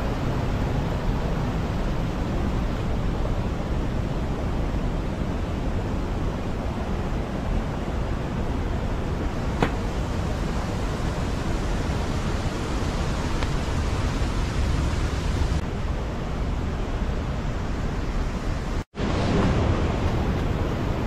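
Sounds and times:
fast-flowing stream rushing: 0:00.0 - 0:15.7.

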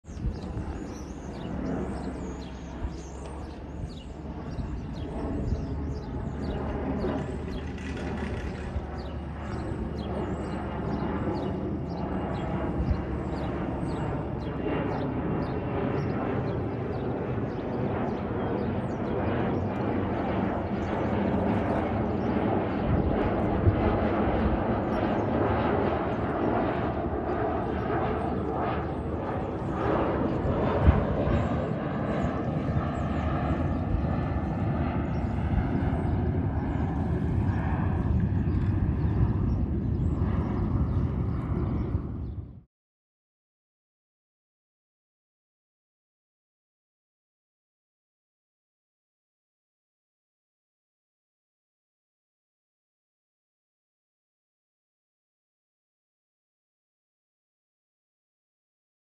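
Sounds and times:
distant jet rumble: 0:00.1 - 0:42.6.

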